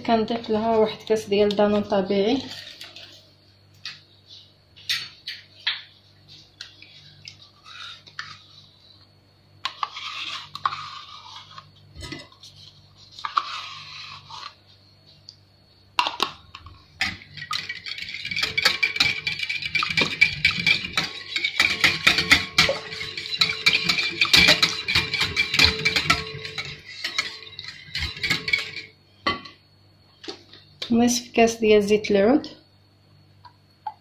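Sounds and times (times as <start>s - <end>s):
fast whisking of batter: 17.2s - 28.9s.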